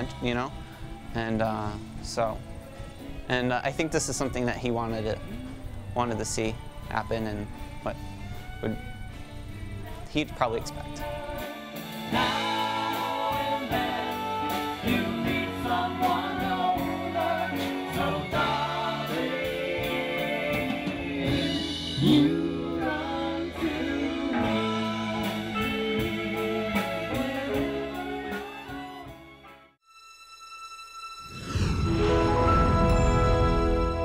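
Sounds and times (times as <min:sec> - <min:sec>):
steady drum beat: 0:00.0 - 0:28.6
song with band and singing: 0:05.0 - 0:29.2.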